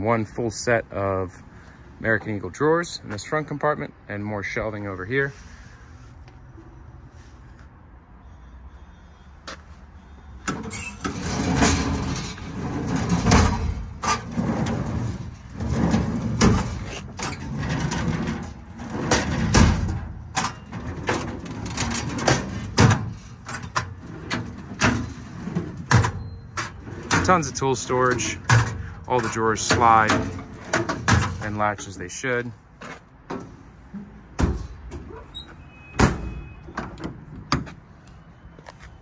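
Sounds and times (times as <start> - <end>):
metal drawer slides rumbling: 10.5 - 31.9.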